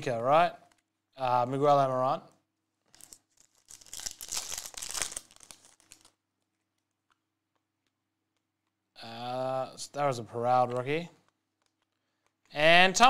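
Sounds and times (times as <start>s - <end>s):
plastic wrapper tearing and crinkling: 2.8s - 7.2s.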